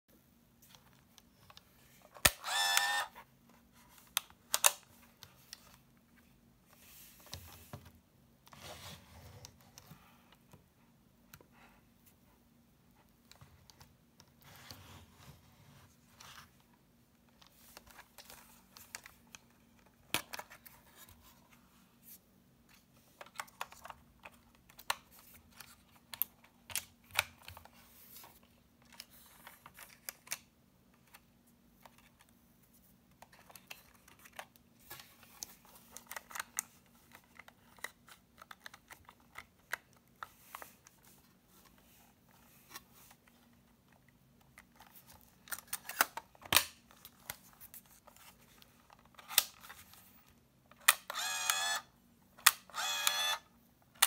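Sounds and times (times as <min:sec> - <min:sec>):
fingers handling plastic camera: 0:00.7 - 0:03.1, 0:33.2 - 0:51.8, 0:52.4 - 0:53.4.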